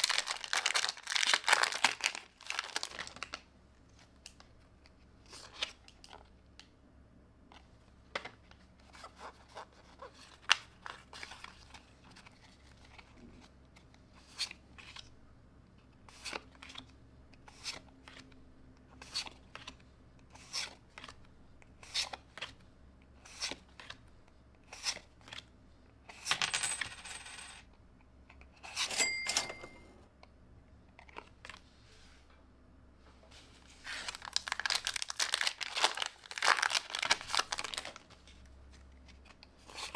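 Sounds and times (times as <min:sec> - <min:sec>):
foil pack crinkling: 0:00.0 - 0:03.4, 0:33.8 - 0:38.1
brief ringing tone: 0:29.0 - 0:30.0.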